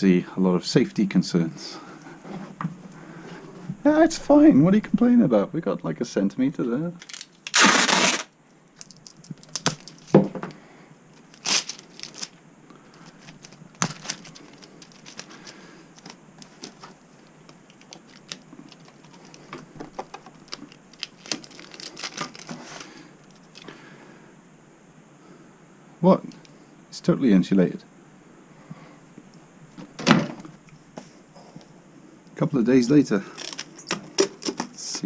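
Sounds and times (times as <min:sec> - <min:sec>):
packing tape ripped off roll: 0:07.0 - 0:10.2, 0:11.2 - 0:12.4, 0:13.0 - 0:19.4, 0:20.0 - 0:23.7
tape crackling on cardboard: 0:07.0 - 0:10.3, 0:11.1 - 0:23.7.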